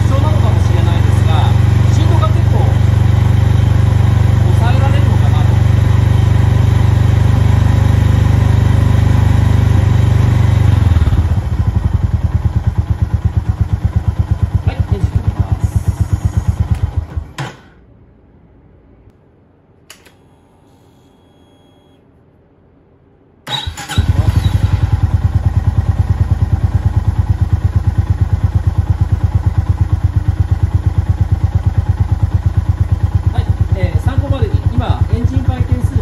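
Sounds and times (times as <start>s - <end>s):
motorcycle engine idling: 0.0s - 17.4s, 23.7s - 36.0s
sharp click: 19.8s - 20.3s.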